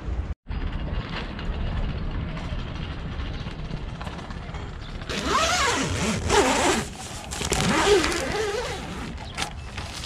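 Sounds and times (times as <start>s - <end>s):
zipper being drawn: 5.1s - 10.0s.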